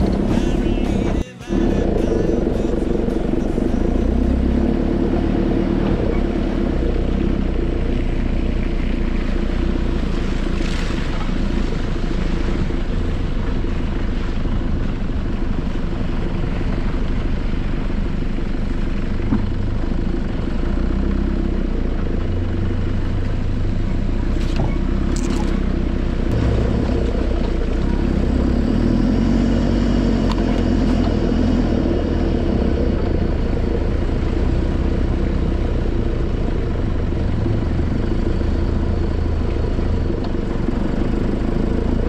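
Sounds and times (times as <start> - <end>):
car engine droning: 0.0 - 42.0.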